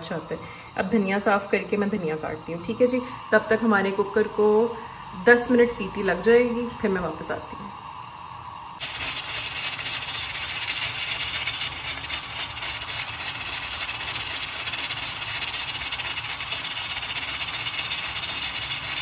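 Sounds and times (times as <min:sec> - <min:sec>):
pressure cooker steam hissing: 0:00.0 - 0:19.0
vent weight rattling: 0:08.8 - 0:19.0.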